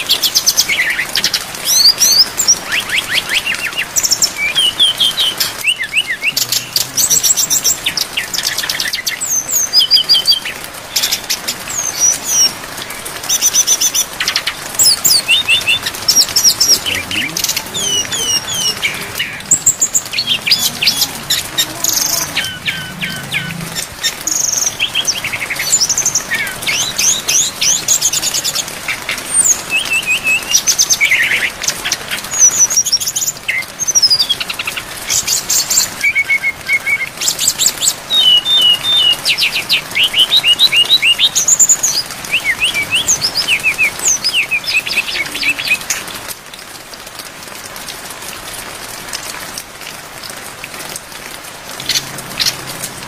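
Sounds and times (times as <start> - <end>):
bird song trills and whistles: 0.0 - 46.0
rain hiss: 0.0 - 53.0.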